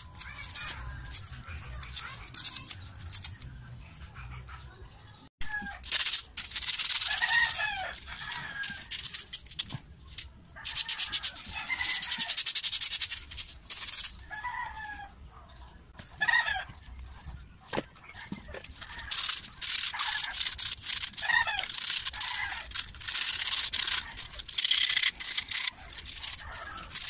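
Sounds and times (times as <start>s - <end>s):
sandpaper rubbing on metal: 0.0s - 3.5s, 5.8s - 14.2s, 18.2s - 27.0s.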